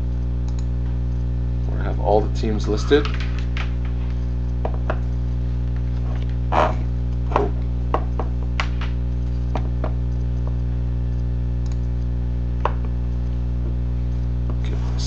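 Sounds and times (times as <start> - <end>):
steady electrical hum: 0.0 - 15.0
sharp clicks and knocks: 2.9 - 5.1.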